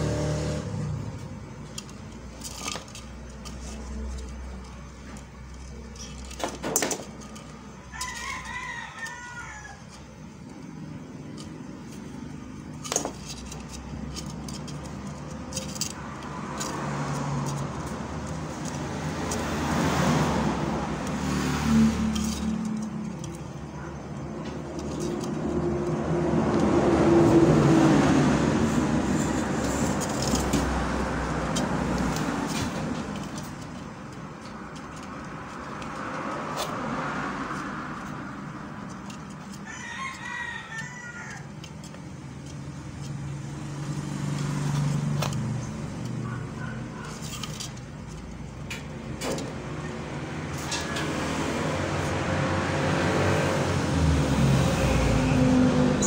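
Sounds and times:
road traffic hum: 0.0 - 56.0
rooster crowing: 7.7 - 10.2, 39.5 - 41.9.

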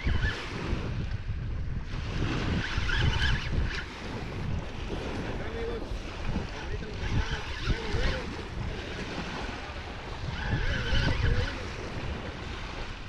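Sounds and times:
waves washing against shore: 0.0 - 13.0
wind buffeting microphone: 0.0 - 13.0
fishing reel cranking: 2.4 - 5.5, 6.3 - 12.3.

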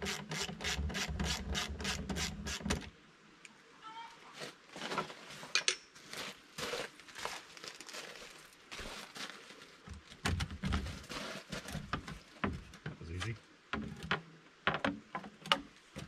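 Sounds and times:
gloved hands rustling and scraping: 4.3 - 10.2, 10.8 - 12.4
dull knocks: 11.8 - 13.0.

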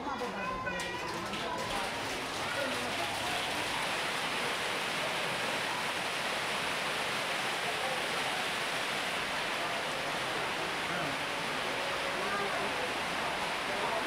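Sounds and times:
steady hissing noise: 3.8 - 14.0.

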